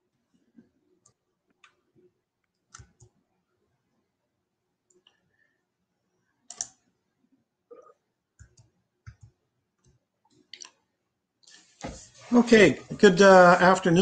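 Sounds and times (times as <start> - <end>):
faint clicks and taps: 0.5 - 3.2, 8.4 - 12.0.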